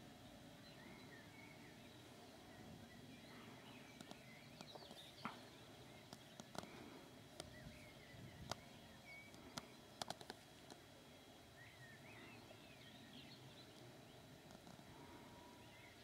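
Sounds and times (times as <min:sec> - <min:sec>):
distant birdsong chirps: 0:00.0 - 0:16.0.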